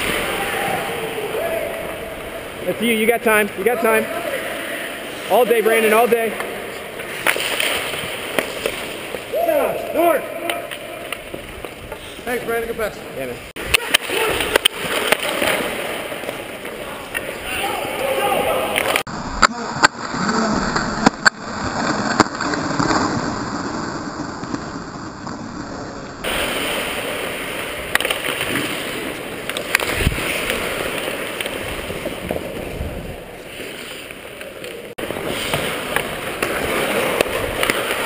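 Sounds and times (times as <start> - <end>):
skate blades scraping ice: 2.6 - 9.3, 20.1 - 38.0.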